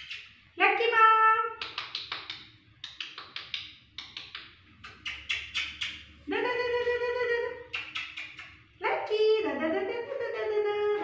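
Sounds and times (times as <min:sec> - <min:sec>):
bird feet and beak clicking: 0:01.6 - 0:06.0, 0:07.7 - 0:08.6.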